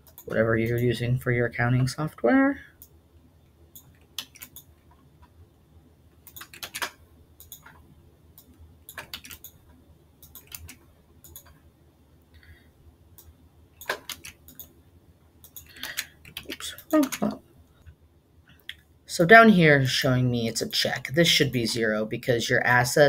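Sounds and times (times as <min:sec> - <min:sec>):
keyboard keystrokes: 0:03.8 - 0:04.7, 0:06.3 - 0:07.8, 0:08.4 - 0:09.6, 0:10.2 - 0:11.6, 0:13.2 - 0:14.7.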